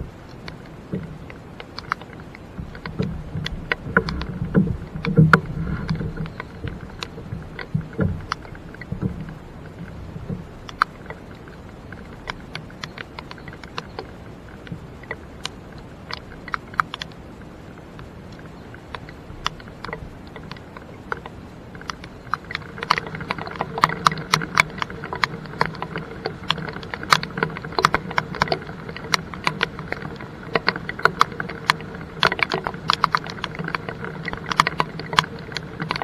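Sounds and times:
faint rain hiss: 0:00.0 - 0:36.0
raindrops ticking on jacket: 0:00.0 - 0:36.0.

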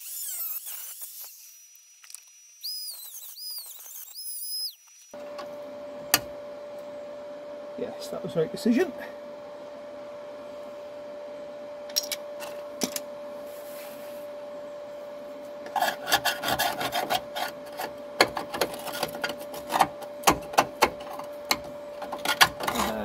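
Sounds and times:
faint steady hum: 0:04.6 - 0:23.0
metal tool scraping rusty steel: 0:15.7 - 0:19.9, 0:22.1 - 0:23.0.

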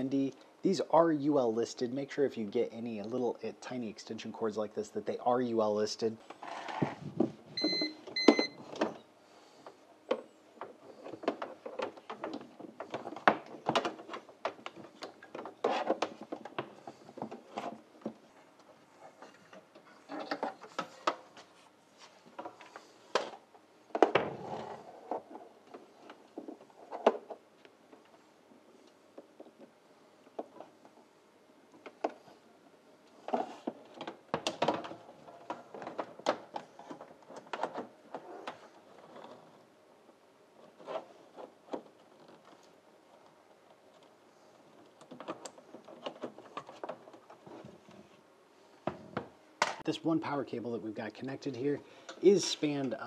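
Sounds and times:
plastic knocks clicks and scrapes: 0:09.6 - 0:18.3, 0:33.2 - 0:39.6, 0:40.6 - 0:48.0.

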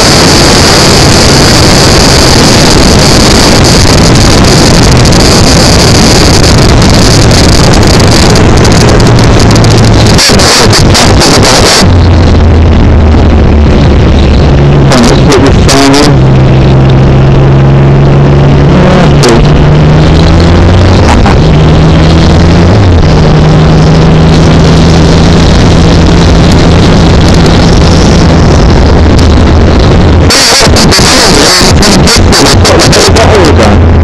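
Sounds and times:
wind buffeting microphone: 0:00.0 - 0:14.9
motorcycle engine running: 0:00.0 - 0:34.0.

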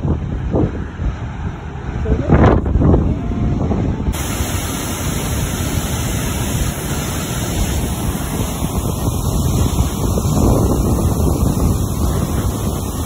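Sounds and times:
water rushing down a spillway: 0:04.1 - 0:13.0.

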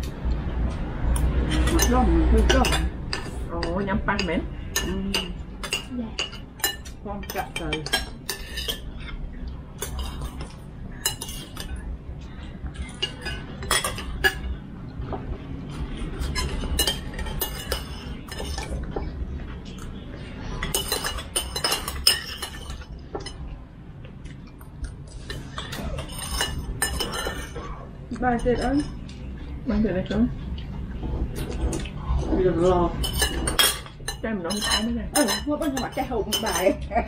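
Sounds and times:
steady low hum: 0:00.0 - 0:37.0
cutlery clinking on bowls: 0:01.2 - 0:09.2, 0:09.8 - 0:23.5, 0:24.2 - 0:29.5, 0:32.9 - 0:36.9.

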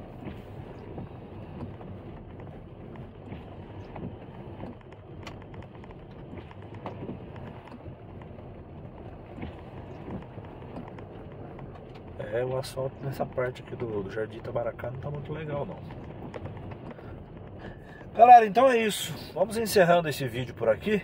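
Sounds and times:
tyre and road noise: 0:00.0 - 0:21.0
small knocks and clicks: 0:01.0 - 0:08.5, 0:09.2 - 0:12.2, 0:14.9 - 0:18.1.

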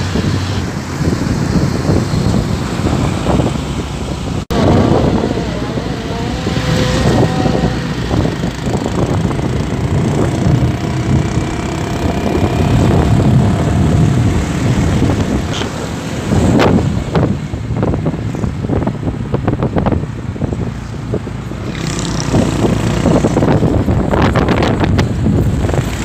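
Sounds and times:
heavy diesel trucks driving past: 0:00.0 - 0:19.3.

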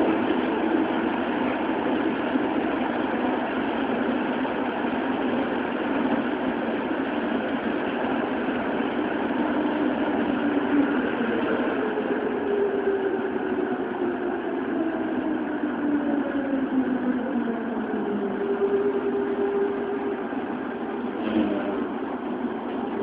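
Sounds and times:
rumble of train wheels in tunnel: 0:00.0 - 0:23.0.

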